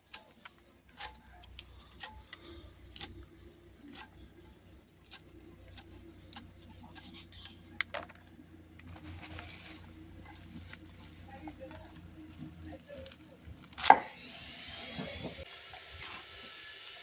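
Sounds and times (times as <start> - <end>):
blade slicing leafy stems: 0.0 - 7.9.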